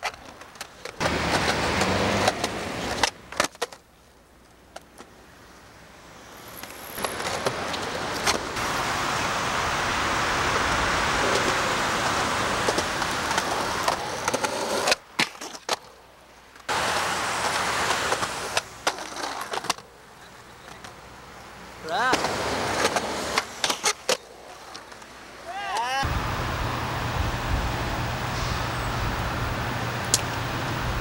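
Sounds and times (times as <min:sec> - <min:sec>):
skateboard wheels rolling on concrete: 0:00.0 - 0:31.0
skateboard tail clacks: 0:11.2 - 0:16.0, 0:16.6 - 0:19.9.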